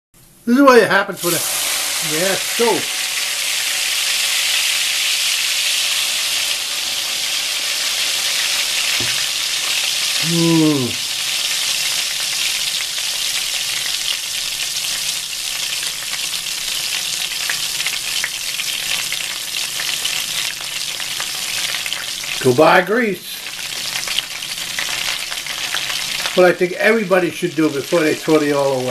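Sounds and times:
oil sizzling in frying pan: 0:01.2 - 0:28.9
short falling vocal sound: 0:10.2 - 0:11.0.

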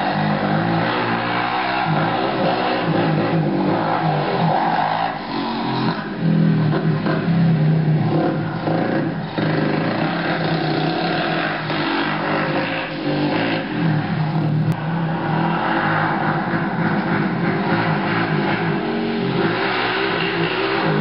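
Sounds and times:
atv engine revving: 0:00.0 - 0:21.0.

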